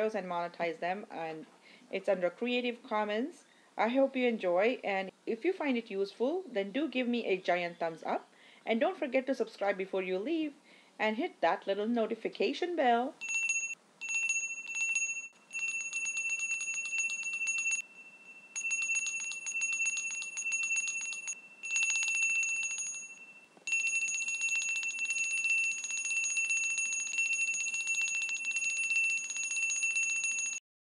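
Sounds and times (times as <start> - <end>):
small bell ringing rapidly: 13.2 - 30.6.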